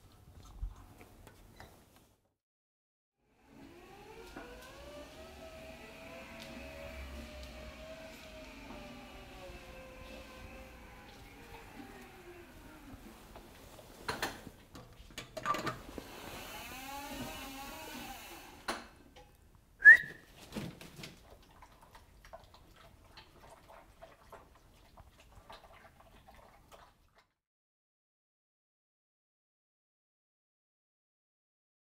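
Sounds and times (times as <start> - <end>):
short sharp whistle: 19.8 - 20.2
dog eating from steel bowl: 21.2 - 27.3.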